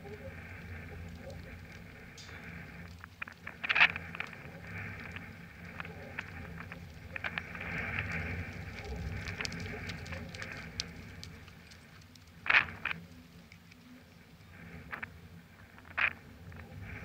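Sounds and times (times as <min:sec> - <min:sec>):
crackling clicks: 0:00.0 - 0:17.0
horse hoofbeats on dirt: 0:03.1 - 0:13.2.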